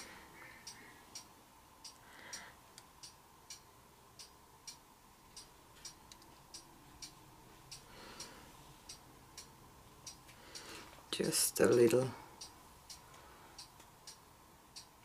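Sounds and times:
faint steady tone: 0:00.0 - 0:15.0.

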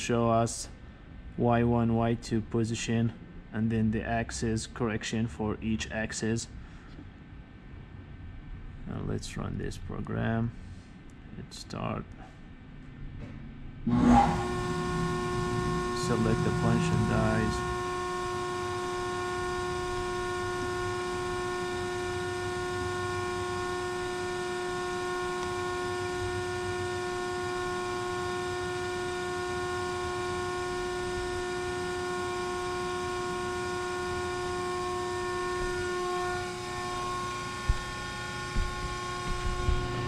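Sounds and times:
deep hum: 0:12.5 - 0:40.0
hydraulic pump whine: 0:13.2 - 0:40.0.

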